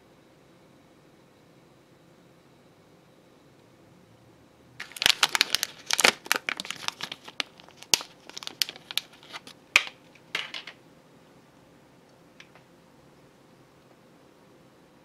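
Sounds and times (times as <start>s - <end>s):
plastic candy pack crinkling: 4.8s - 10.8s.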